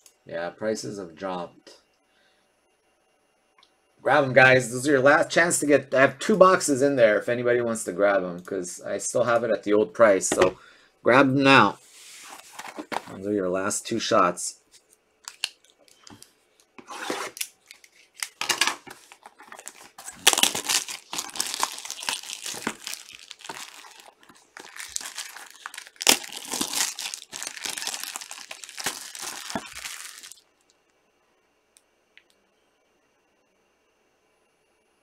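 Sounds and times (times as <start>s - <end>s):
plastic shrink wrap tearing and crumpling: 15.3s - 16.0s, 16.8s - 30.4s.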